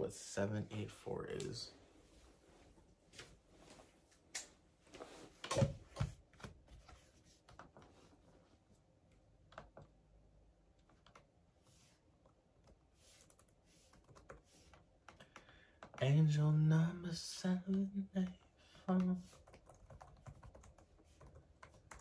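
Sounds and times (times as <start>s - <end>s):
laptop keyboard typing: 9.4s - 10.0s, 10.7s - 11.4s, 12.2s - 16.0s, 18.9s - 22.0s.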